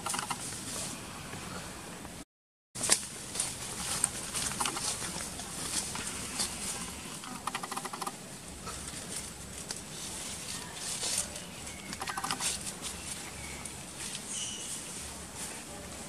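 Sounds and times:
monkey clicking trill: 0.0 - 0.4, 4.5 - 5.0, 7.2 - 8.2, 11.8 - 12.7
rustling through dry leaves: 2.8 - 7.6, 8.6 - 16.0.

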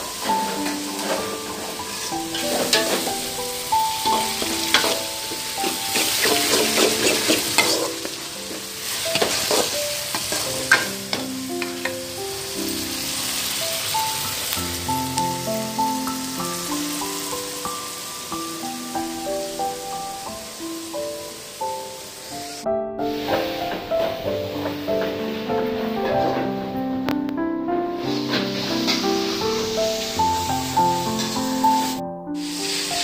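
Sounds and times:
vegetables sizzling in hot oil: 0.0 - 26.8, 28.0 - 33.0
soft melodic background music: 0.0 - 33.0
spatula scraping a metal pan: 0.1 - 3.3, 3.9 - 11.3.

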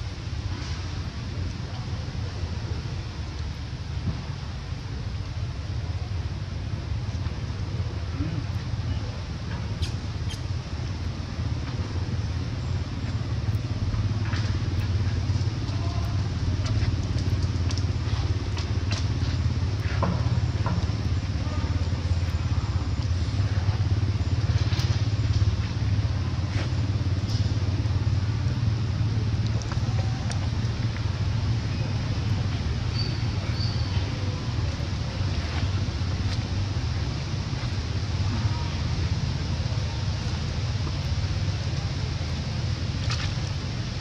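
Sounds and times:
steady low rumble: 0.0 - 44.0
faint clicks and ticks: 13.0 - 21.3, 29.3 - 31.1.

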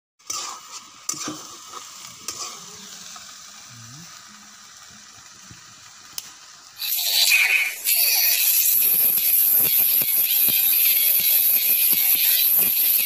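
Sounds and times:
vegetables sizzling in a pan: 0.2 - 13.0.

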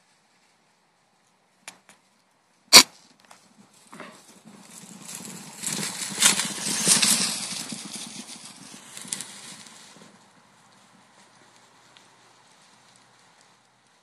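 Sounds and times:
horses galloping over grass: 3.3 - 14.0.

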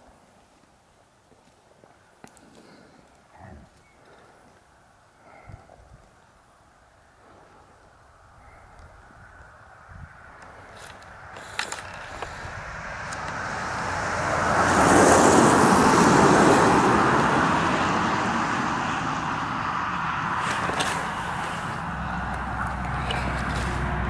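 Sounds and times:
road vehicle passing by: 9.1 - 24.0.

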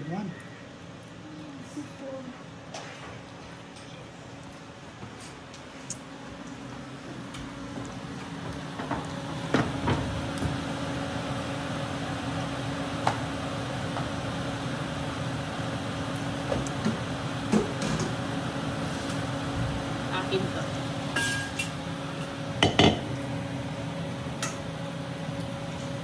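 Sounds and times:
appliance motor hum: 6.4 - 26.0.

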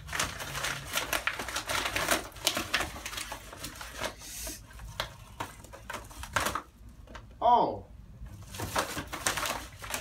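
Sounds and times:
envelope tearing: 0.0 - 4.2, 4.8 - 6.7, 8.4 - 10.0
paper envelope crinkling: 0.0 - 6.8, 8.3 - 10.0.

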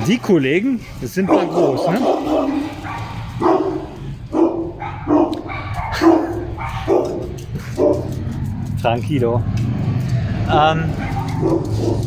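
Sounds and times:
large dogs barking: 0.7 - 8.7, 10.8 - 12.0.

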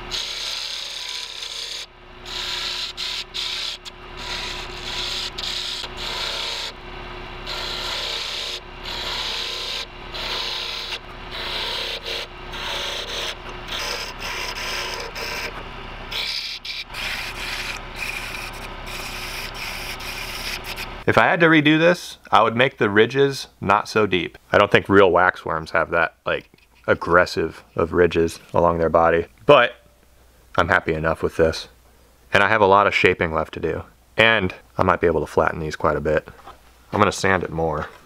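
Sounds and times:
chisel scraping spinning wood: 0.0 - 21.0
lathe motor humming: 0.0 - 21.1.

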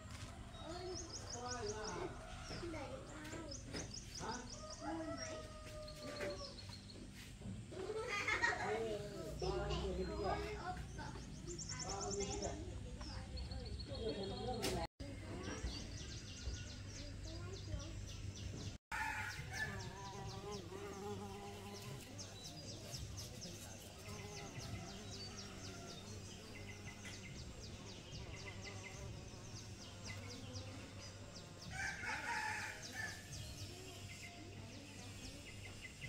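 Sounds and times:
rooster crowing: 4.6 - 6.4.

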